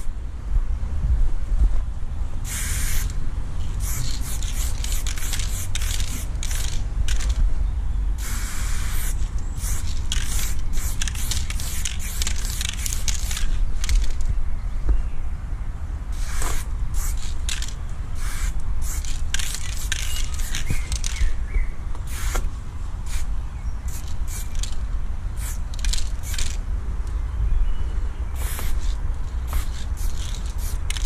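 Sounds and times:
spray paint can hissing: 2.4s - 7.4s, 8.2s - 14.2s, 16.1s - 21.3s, 22.0s - 22.5s, 23.1s - 23.3s, 23.9s - 24.8s, 25.4s - 26.6s, 28.4s - 31.0s.

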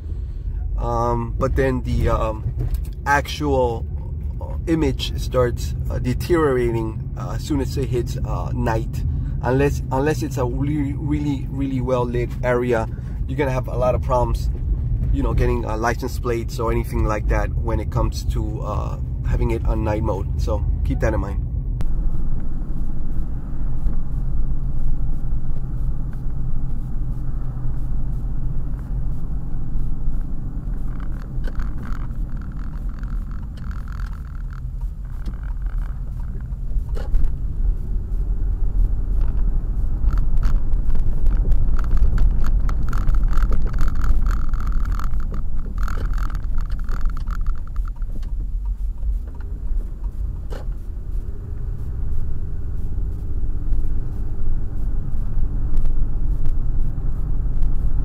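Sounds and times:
car engine low rumble: 0.0s - 58.0s.

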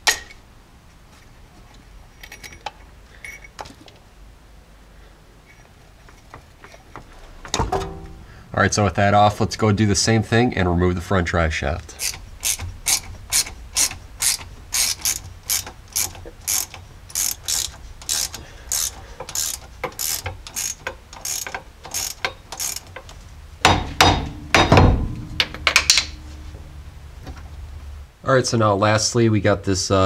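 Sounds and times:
metal knocks and scraping: 5.4s - 8.4s, 12.0s - 28.0s
ratchet wrench clicking: 12.0s - 23.2s.

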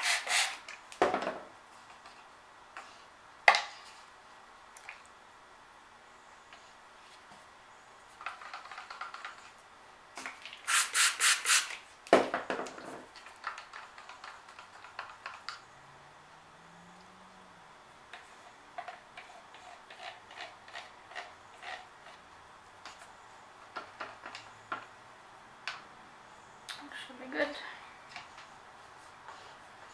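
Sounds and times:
stir stick scraping plastic cup: 18.8s - 22.2s.

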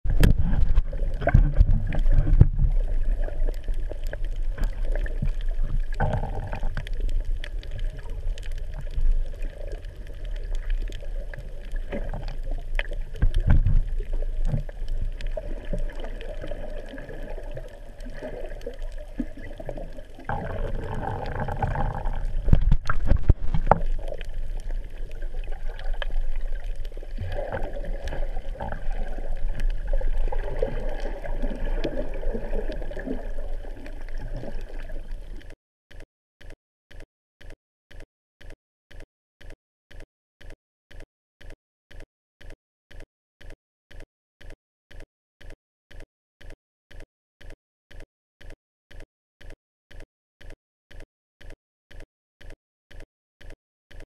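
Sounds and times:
muffled underwater rumble: 0.0s - 35.6s
water gurgling and swishing: 0.0s - 35.6s.

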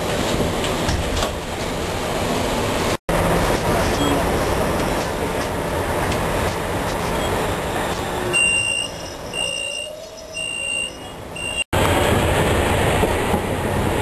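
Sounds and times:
tram running noise: 0.0s - 14.0s
high electronic warning beeps: 8.3s - 11.7s.

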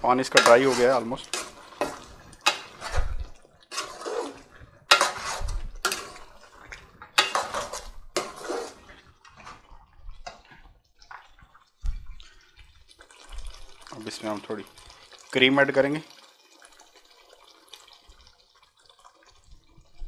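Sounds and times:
metal spoon scraping pot: 0.1s - 10.4s.

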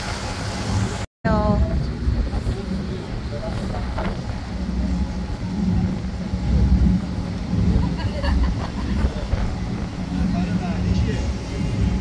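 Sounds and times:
boat engine droning: 0.0s - 12.0s.

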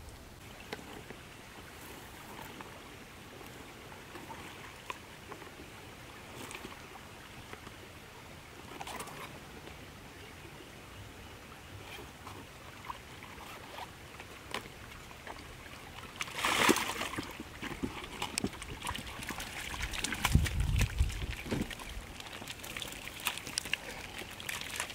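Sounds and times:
water splashing: 11.8s - 24.9s
catfish flopping on wet dirt: 16.2s - 24.9s.

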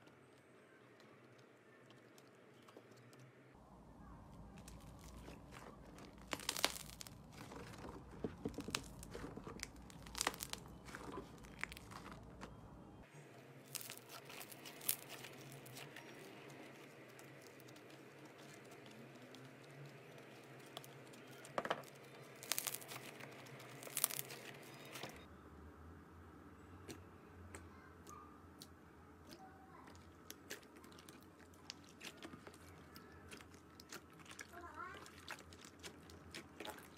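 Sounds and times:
sticky slime crackles and pops: 4.5s - 12.6s, 13.6s - 25.2s, 28.6s - 36.9s
slime tearing snaps: 8.7s - 10.7s.

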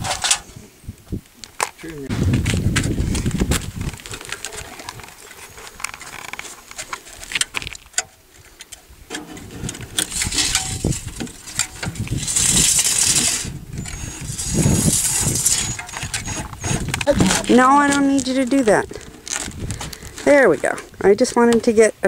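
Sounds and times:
sheet metal scraping: 0.0s - 0.6s, 9.1s - 19.6s.

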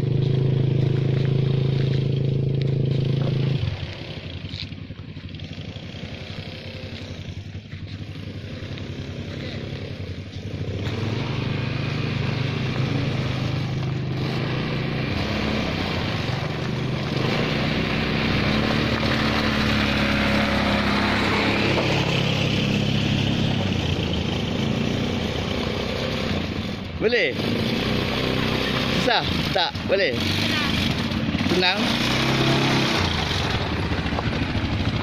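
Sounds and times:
quad bike engine running: 0.0s - 35.0s.

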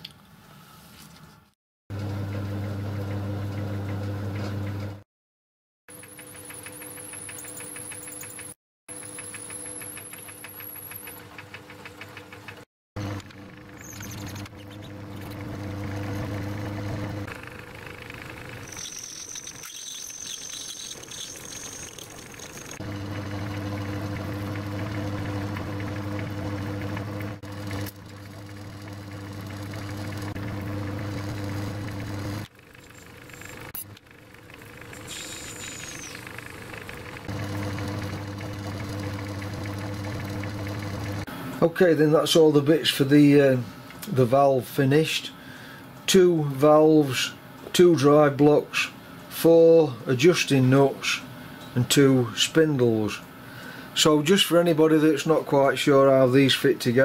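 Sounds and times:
metal lathe motor hum: 13.0s - 41.3s.

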